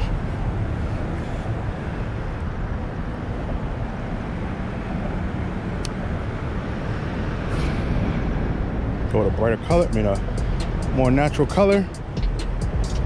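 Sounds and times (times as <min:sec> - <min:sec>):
traffic rumble on bridge: 0:00.0 - 0:13.0.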